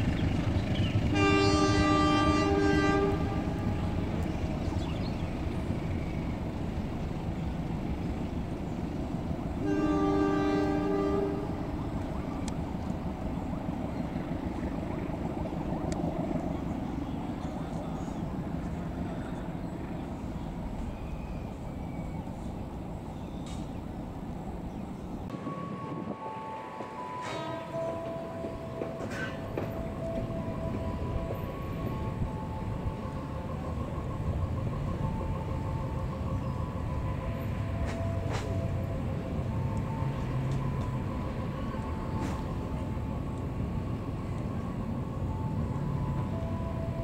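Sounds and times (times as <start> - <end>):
train rumbling on rails: 0.0 - 47.0
locomotive horn blast: 1.0 - 4.2, 9.6 - 12.5, 25.2 - 33.3, 34.9 - 43.4.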